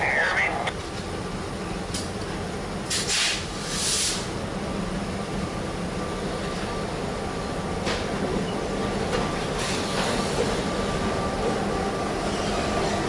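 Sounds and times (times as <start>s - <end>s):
diesel locomotive droning: 0.0s - 13.0s
short bursts of hiss: 2.9s - 4.3s.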